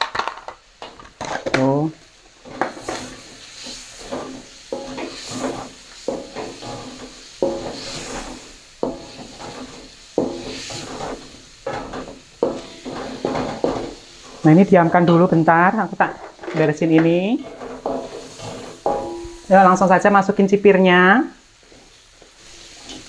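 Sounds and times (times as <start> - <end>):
faint frying sizzle: 0.0 - 23.0
spatula scraping wok: 0.8 - 1.6, 2.4 - 20.8, 21.4 - 23.0.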